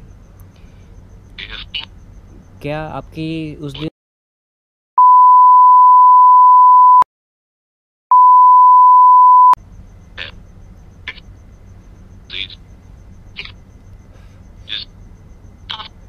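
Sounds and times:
censor bleep tone: 5.0 - 7.1, 8.1 - 9.6.

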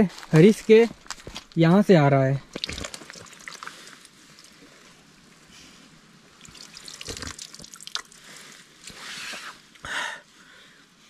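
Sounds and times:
hands splashing in water: 2.5 - 4.6, 6.4 - 8.2
water dripping: 2.5 - 4.7, 6.3 - 8.9.

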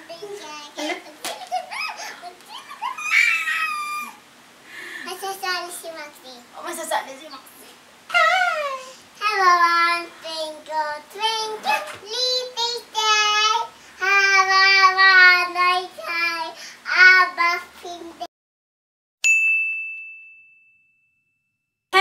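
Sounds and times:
bright chime ding: 19.2 - 21.6.

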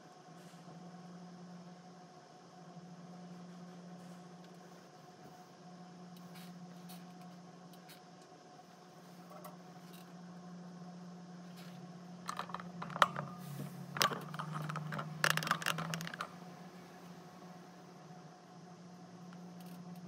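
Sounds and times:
steady low hum: 0.0 - 20.0
handling clicks and scrapes: 11.5 - 16.4.

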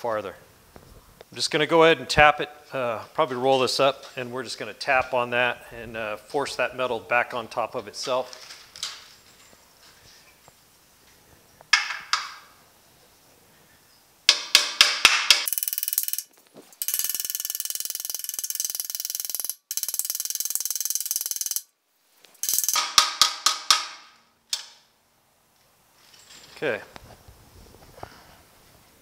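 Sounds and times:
hammer striking metal: 14.3 - 15.5
rapid hammer tapping: 14.3 - 21.6.

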